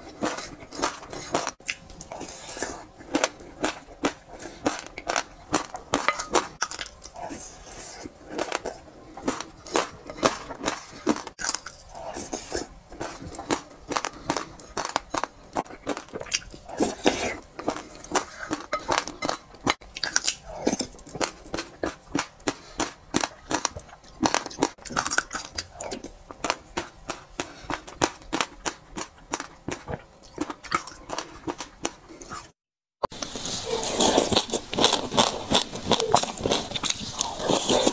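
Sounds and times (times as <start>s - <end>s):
mouth smacks and slurps: 33.2s - 37.9s.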